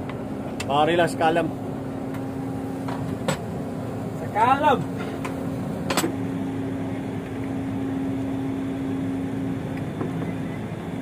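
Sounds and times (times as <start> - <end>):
steady machine hum: 0.0 - 11.0.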